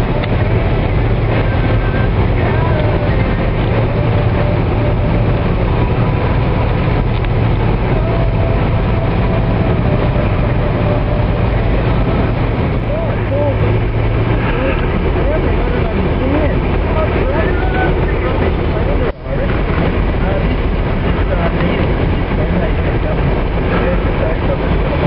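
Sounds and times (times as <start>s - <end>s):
engine and tyre rumble: 0.0s - 25.0s.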